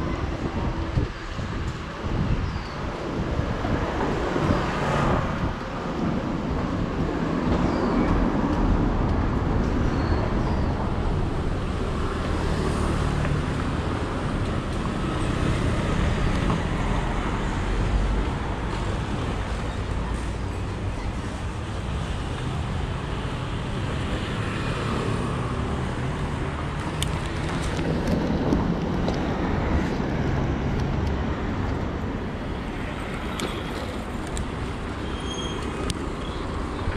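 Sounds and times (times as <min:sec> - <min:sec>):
wind rumble on microphone: 0:00.0 - 0:19.6, 0:25.4 - 0:34.9
passing cars and scooters: 0:00.0 - 0:36.9.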